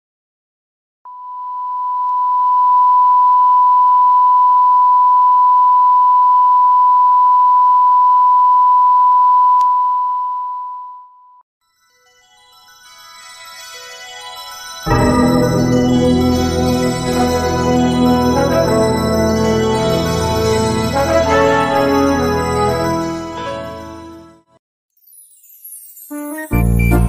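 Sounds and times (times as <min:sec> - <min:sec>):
keyboard music: 0:13.9 - 0:24.6, 0:26.1 - 0:27.0.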